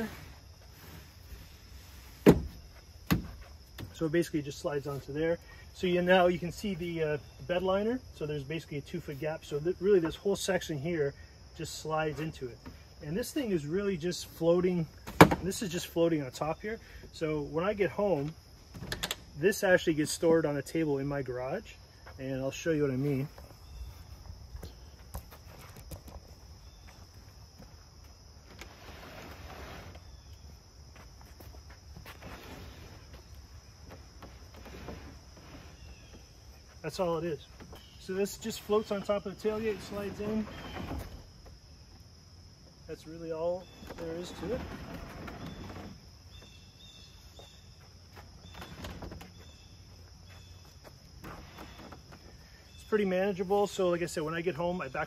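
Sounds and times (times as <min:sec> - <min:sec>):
insects chirring: 0:00.0 - 0:55.0
wooden box knocking and scraping: 0:02.2 - 0:04.0
scuffing noise: 0:30.9 - 0:34.1.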